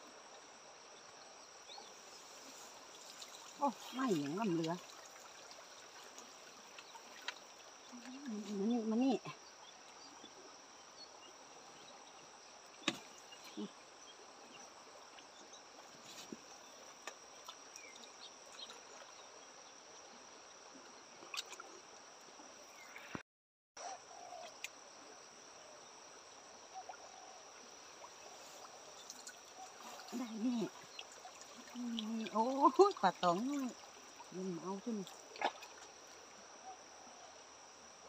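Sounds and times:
faint hiss: 0:00.0 - 0:08.7.

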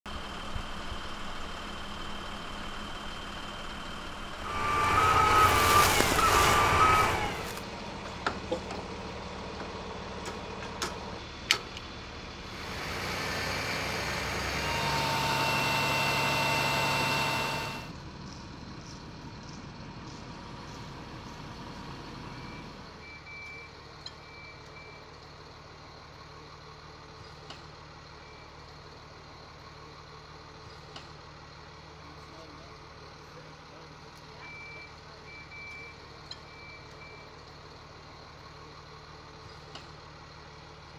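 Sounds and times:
reversing beeper: 0:00.1 - 0:07.6, 0:13.3 - 0:17.9
crane truck engine running: 0:00.1 - 0:40.9
truck engine idling: 0:00.1 - 0:40.9.

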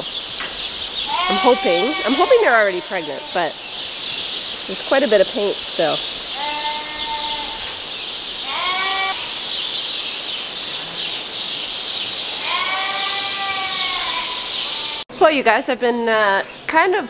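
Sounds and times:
sheep bleating: 0:01.1 - 0:03.6, 0:06.3 - 0:07.6, 0:08.4 - 0:09.4, 0:12.4 - 0:15.0.

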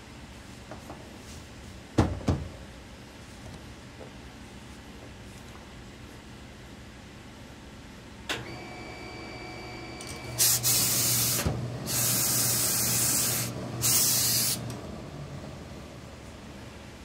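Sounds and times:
steam iron hissing: 0:10.2 - 0:14.7
steady low hum: 0:11.5 - 0:17.0.

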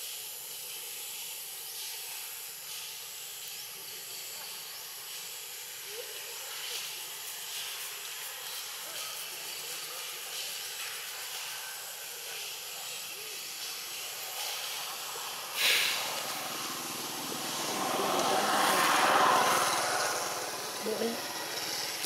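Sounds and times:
steady outdoor hiss: 0:00.0 - 0:22.0
brief sharp hiss: 0:13.6 - 0:18.2
vehicle engine passing: 0:15.0 - 0:22.0.

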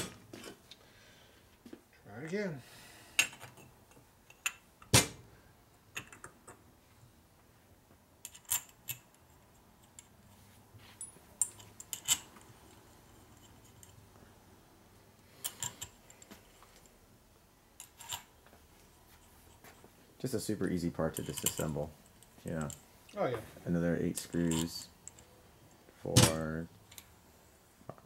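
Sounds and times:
metal parts clicking and clinking: 0:08.2 - 0:10.2, 0:11.0 - 0:12.5, 0:15.4 - 0:16.9, 0:17.8 - 0:18.3, 0:21.1 - 0:22.8, 0:24.1 - 0:25.4.

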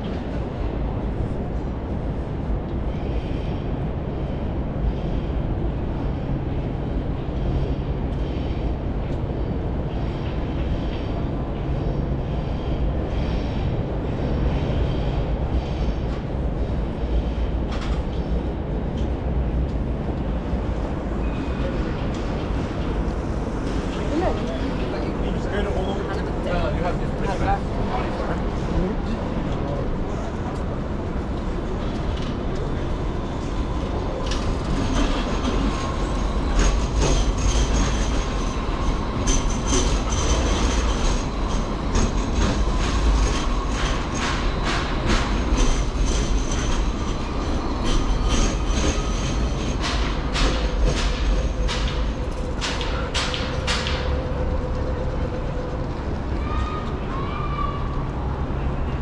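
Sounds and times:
tram wheels clacking on track: 0:30.4 - 0:55.8.

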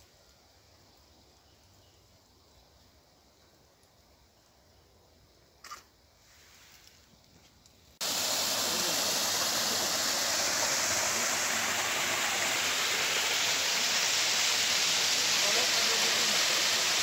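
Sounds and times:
stream flowing over rocks: 0:08.0 - 0:17.0.

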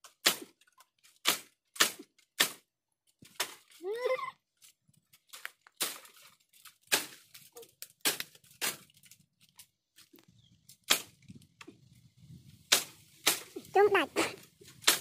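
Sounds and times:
dry bamboo stems cracking: 0:00.0 - 0:03.8, 0:04.5 - 0:13.8, 0:14.4 - 0:15.0
dry leaves crackling and tearing: 0:04.6 - 0:11.2.

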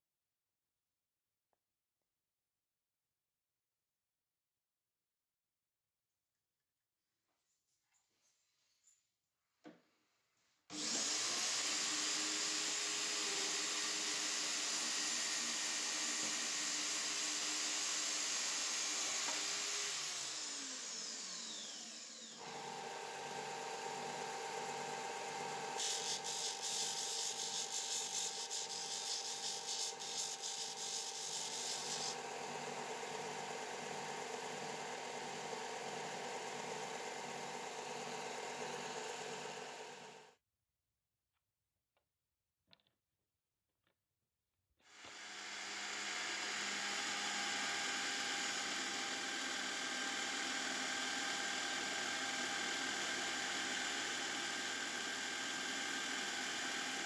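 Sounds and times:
chop saw cutting metal: 0:10.7 - 0:23.3, 0:25.3 - 0:32.3, 0:44.8 - 0:57.0
bench machine pulsing: 0:20.1 - 0:22.8.

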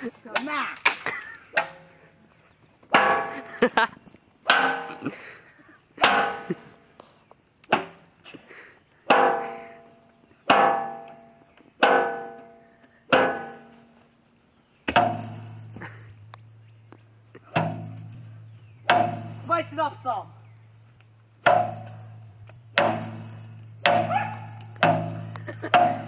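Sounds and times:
sheet metal clanging: 0:01.6 - 0:02.0, 0:02.9 - 0:03.5, 0:04.5 - 0:05.0, 0:06.0 - 0:06.7, 0:09.1 - 0:13.9, 0:14.9 - 0:16.6, 0:17.2 - 0:26.0
low steady hum: 0:12.0 - 0:26.0.

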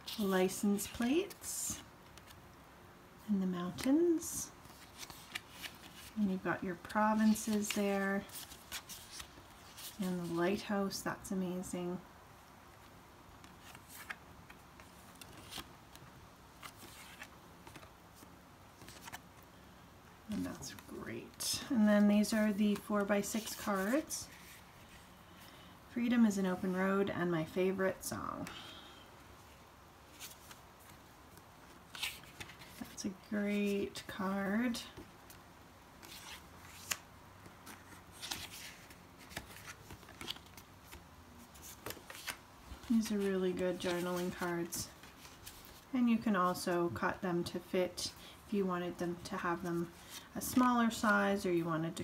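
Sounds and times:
cards rustling and sliding: 0:03.8 - 0:06.2, 0:06.9 - 0:10.6, 0:13.4 - 0:19.5, 0:22.2 - 0:25.1, 0:30.1 - 0:33.8, 0:36.0 - 0:45.9
soft scratchy rustles: 0:20.3 - 0:25.6, 0:36.0 - 0:46.8.

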